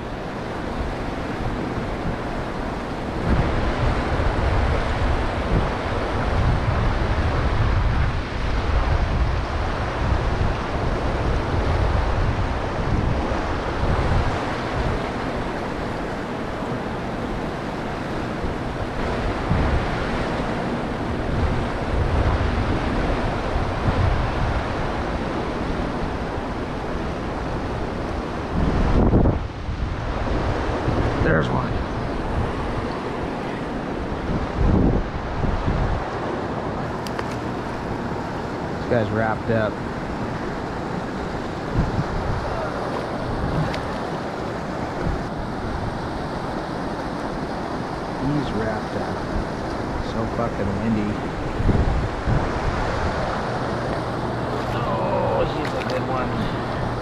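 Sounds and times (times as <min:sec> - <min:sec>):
wind buffeting microphone: 0:00.0 - 0:57.0
river water rushing over rocks: 0:31.3 - 0:57.0.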